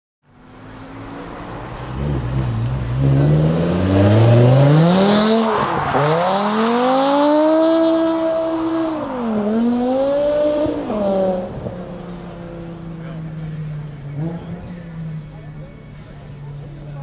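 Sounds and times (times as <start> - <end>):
car engine revving hard: 1.8 - 15.1.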